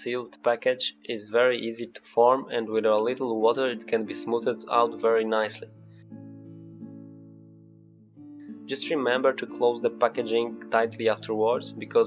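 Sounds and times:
guitar notes ringing: 0:03.4 - 0:12.0.

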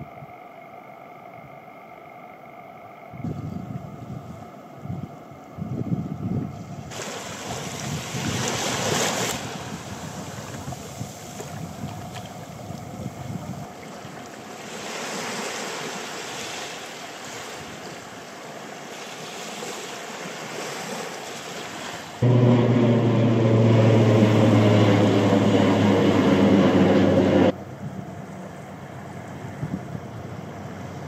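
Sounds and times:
wind: 0:00.0 - 0:31.0
surf: 0:06.9 - 0:12.6, 0:13.4 - 0:27.6
loud droning hum: 0:22.2 - 0:27.8.

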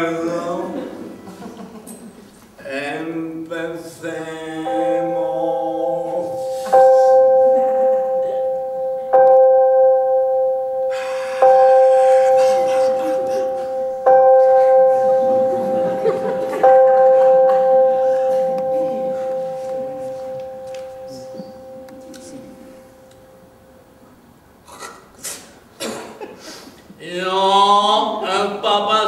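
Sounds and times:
bell ringing: 0:04.7 - 0:24.0.

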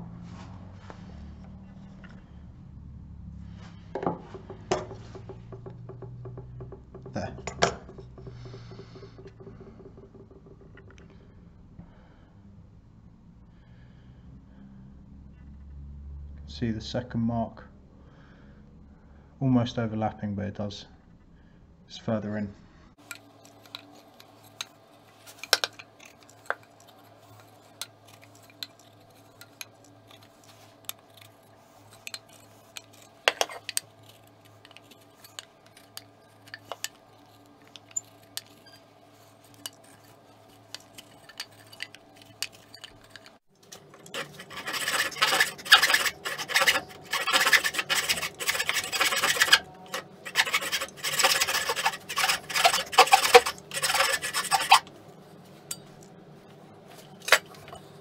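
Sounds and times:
faint hum: 0:08.2 - 0:16.4, 0:17.5 - 0:58.0
marking gauge ticks and scrapes: 0:23.0 - 0:54.9
backsaw rasping through wood: 0:25.5 - 0:38.8, 0:44.0 - 0:54.9.

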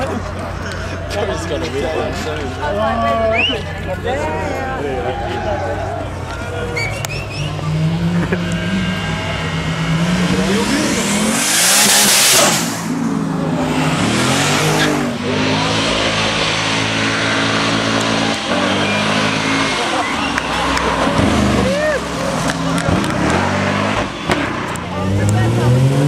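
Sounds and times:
car engine revving: 0:05.8 - 0:26.0
tyre squeal: 0:06.6 - 0:07.7, 0:18.2 - 0:20.7
car passing at speed: 0:07.1 - 0:26.0.

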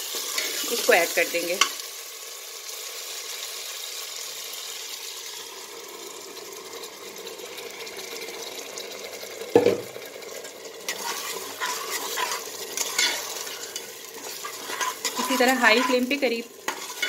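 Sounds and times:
meat sizzling in hot oil: 0:00.0 - 0:17.0
spatula scraping pot: 0:10.8 - 0:17.0.

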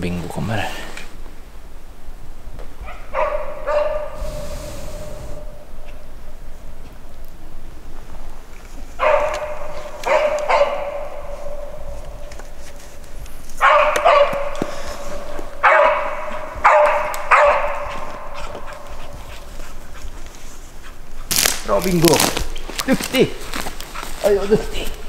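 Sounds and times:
hunting dog barking: 0:02.8 - 0:06.0, 0:09.0 - 0:12.4, 0:13.6 - 0:21.3.

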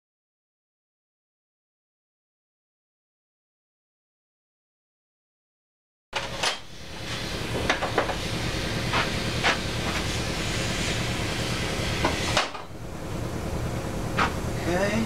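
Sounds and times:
workshop hum: 0:06.2 - 0:15.0.

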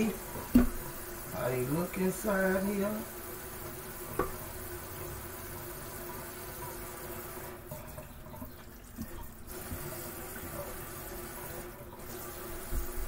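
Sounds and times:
faucet water into metal sink: 0:00.0 - 0:13.0.

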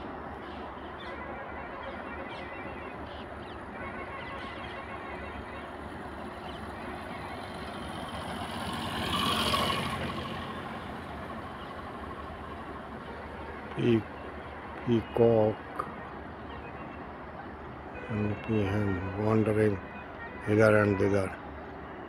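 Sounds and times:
vehicle passing by: 0:06.6 - 0:12.9.

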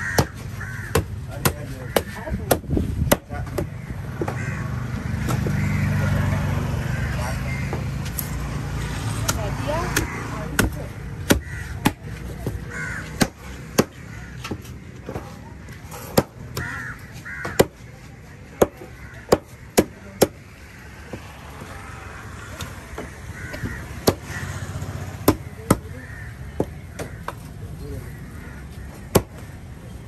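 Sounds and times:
crows cawing: 0:00.0 - 0:02.6, 0:03.3 - 0:08.2, 0:08.8 - 0:30.0
heavy knife chopping fish: 0:00.1 - 0:04.3, 0:09.3 - 0:15.2.

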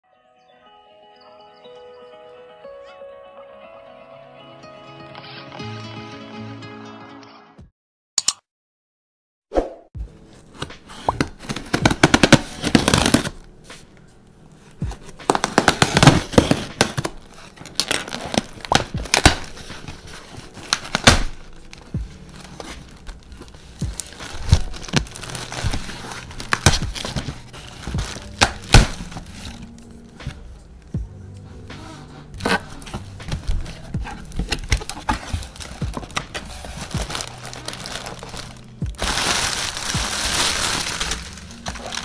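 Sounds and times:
packing tape ripping: 0:11.2 - 0:13.4, 0:15.2 - 0:29.9, 0:32.4 - 0:42.0
cardboard flaps scraping and rustling: 0:14.9 - 0:29.7, 0:31.9 - 0:42.0.

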